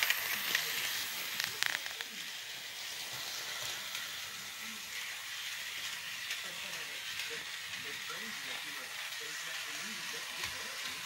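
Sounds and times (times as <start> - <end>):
model train motor whirring: 0.0 - 11.0.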